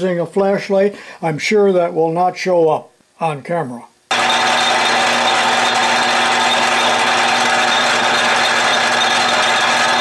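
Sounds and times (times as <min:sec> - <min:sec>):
metal lathe running: 0:04.1 - 0:10.0.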